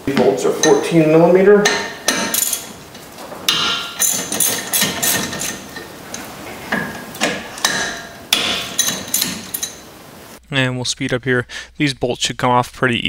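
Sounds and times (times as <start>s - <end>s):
ratchet metal clinks: 1.6s - 2.9s, 3.5s - 9.9s.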